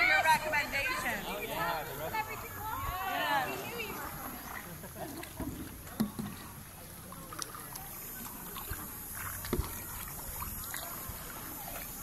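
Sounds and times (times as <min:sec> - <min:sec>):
kayak paddles splashing: 0:00.0 - 0:12.0
light knocks on kayak: 0:05.4 - 0:06.5, 0:09.4 - 0:09.8.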